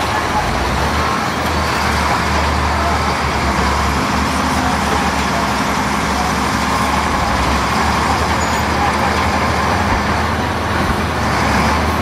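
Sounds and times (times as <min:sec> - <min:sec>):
bulldozer and loader engines droning: 0:00.0 - 0:12.0.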